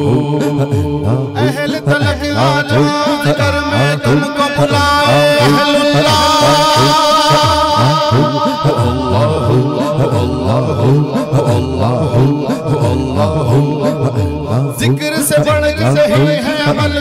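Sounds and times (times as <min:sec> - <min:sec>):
man singing into a microphone: 0:00.0 - 0:17.0
rhythmic background chant: 0:00.0 - 0:17.0.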